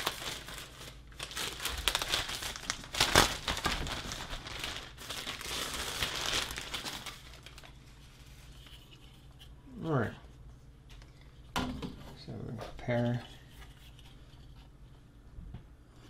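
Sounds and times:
plastic bag crinkling: 0:00.0 - 0:08.8.

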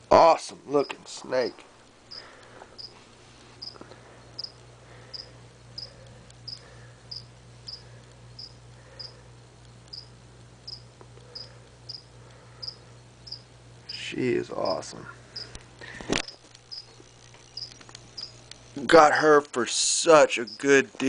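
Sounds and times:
steady low hum: 0:00.0 - 0:21.0
cricket chirping: 0:02.1 - 0:03.0, 0:03.6 - 0:09.2, 0:09.9 - 0:14.0, 0:14.6 - 0:15.6, 0:16.2 - 0:18.8, 0:20.4 - 0:20.8.

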